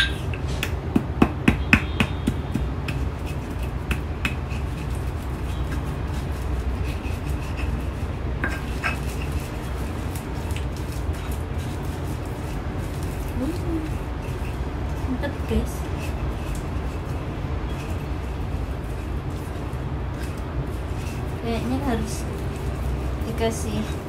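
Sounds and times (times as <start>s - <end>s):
stone pestle clacking in mortar: 0.0s - 15.1s
steady low hum: 0.0s - 24.0s.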